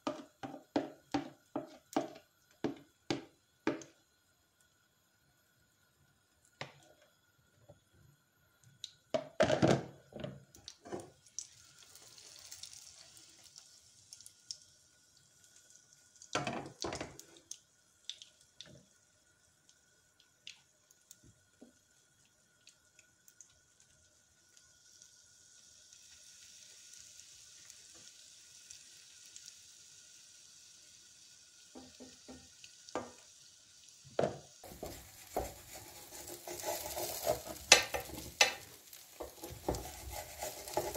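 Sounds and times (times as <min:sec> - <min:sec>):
faint steady hiss: 0:00.0 - 0:40.9
kitchen clatter and knocks: 0:09.2 - 0:11.1, 0:34.2 - 0:40.9.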